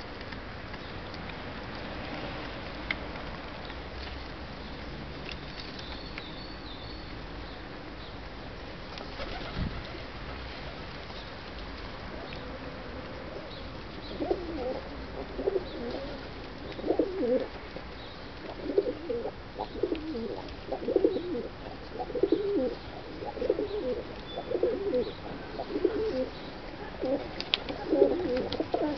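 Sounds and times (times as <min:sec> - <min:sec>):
pigeons cooing: 0:13.2 - 0:17.6, 0:18.4 - 0:28.9.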